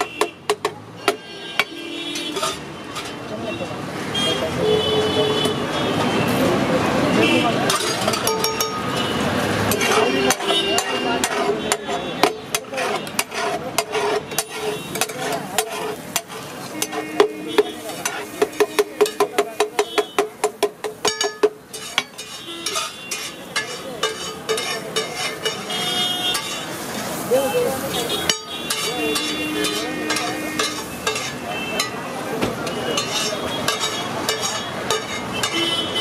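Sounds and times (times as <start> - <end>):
steel spatulas clanging on iron griddle: 0.0 - 3.2, 7.6 - 36.0.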